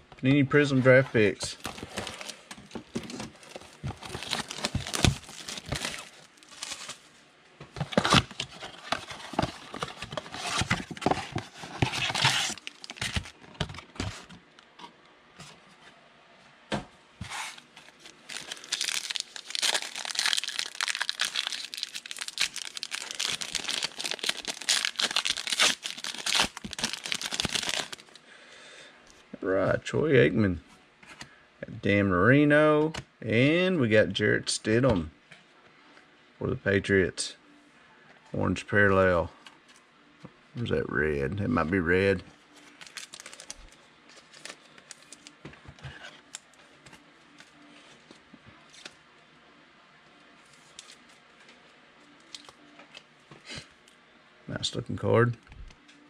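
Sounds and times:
foil pack crinkling and tearing: 3.0 - 7.0, 7.8 - 13.7, 17.8 - 28.2, 42.7 - 45.3
cardboard box tearing: 4.0 - 6.9, 7.9 - 13.3.

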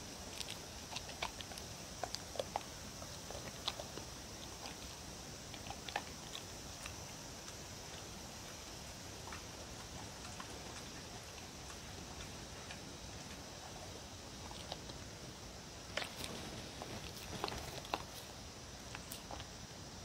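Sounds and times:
dog chewing food: 0.0 - 19.7.

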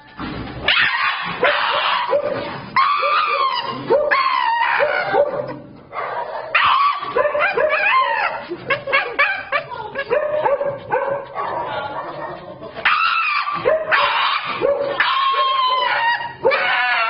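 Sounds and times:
dog screaming: 0.7 - 5.3, 6.3 - 10.1, 12.8 - 17.0
dog yipping: 0.7 - 12.2, 12.8 - 17.0.

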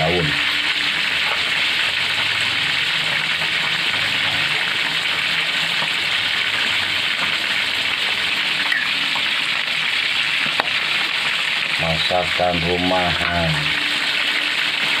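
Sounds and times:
food sizzling in a wok: 0.0 - 15.0.

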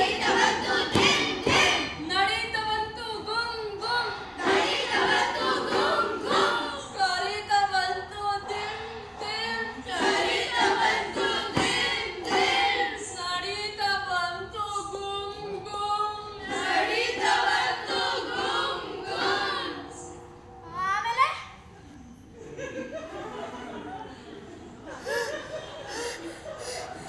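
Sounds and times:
children singing in chorus: 0.0 - 2.0, 3.4 - 13.2, 14.7 - 20.7.

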